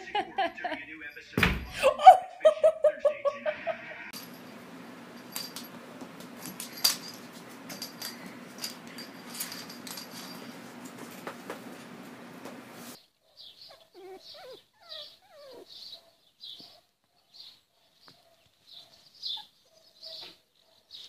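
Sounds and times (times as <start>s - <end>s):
steady low hum: 3.6s - 13.0s
small object clattering on wooden floor: 5.2s - 11.7s.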